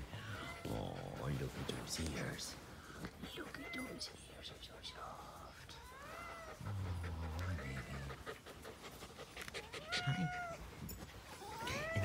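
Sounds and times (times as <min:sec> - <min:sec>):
fox high calls: 0:09.6 - 0:10.6.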